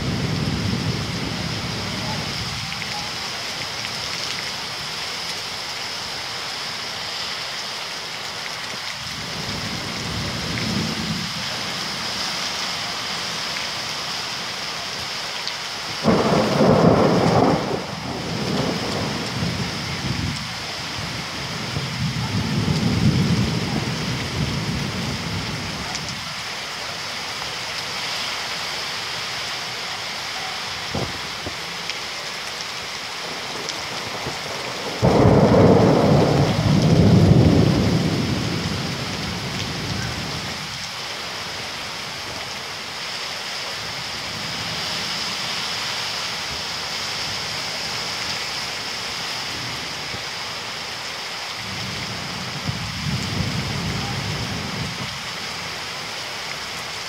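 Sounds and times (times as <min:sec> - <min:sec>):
heavy rain: 0:00.0 - 0:57.0
thunder clap rumbling: 0:16.0 - 0:25.3, 0:33.9 - 0:40.4.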